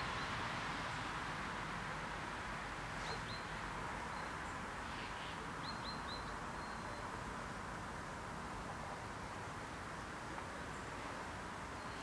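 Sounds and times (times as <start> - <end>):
steady rushing hiss: 0.0 - 5.7, 6.3 - 12.0.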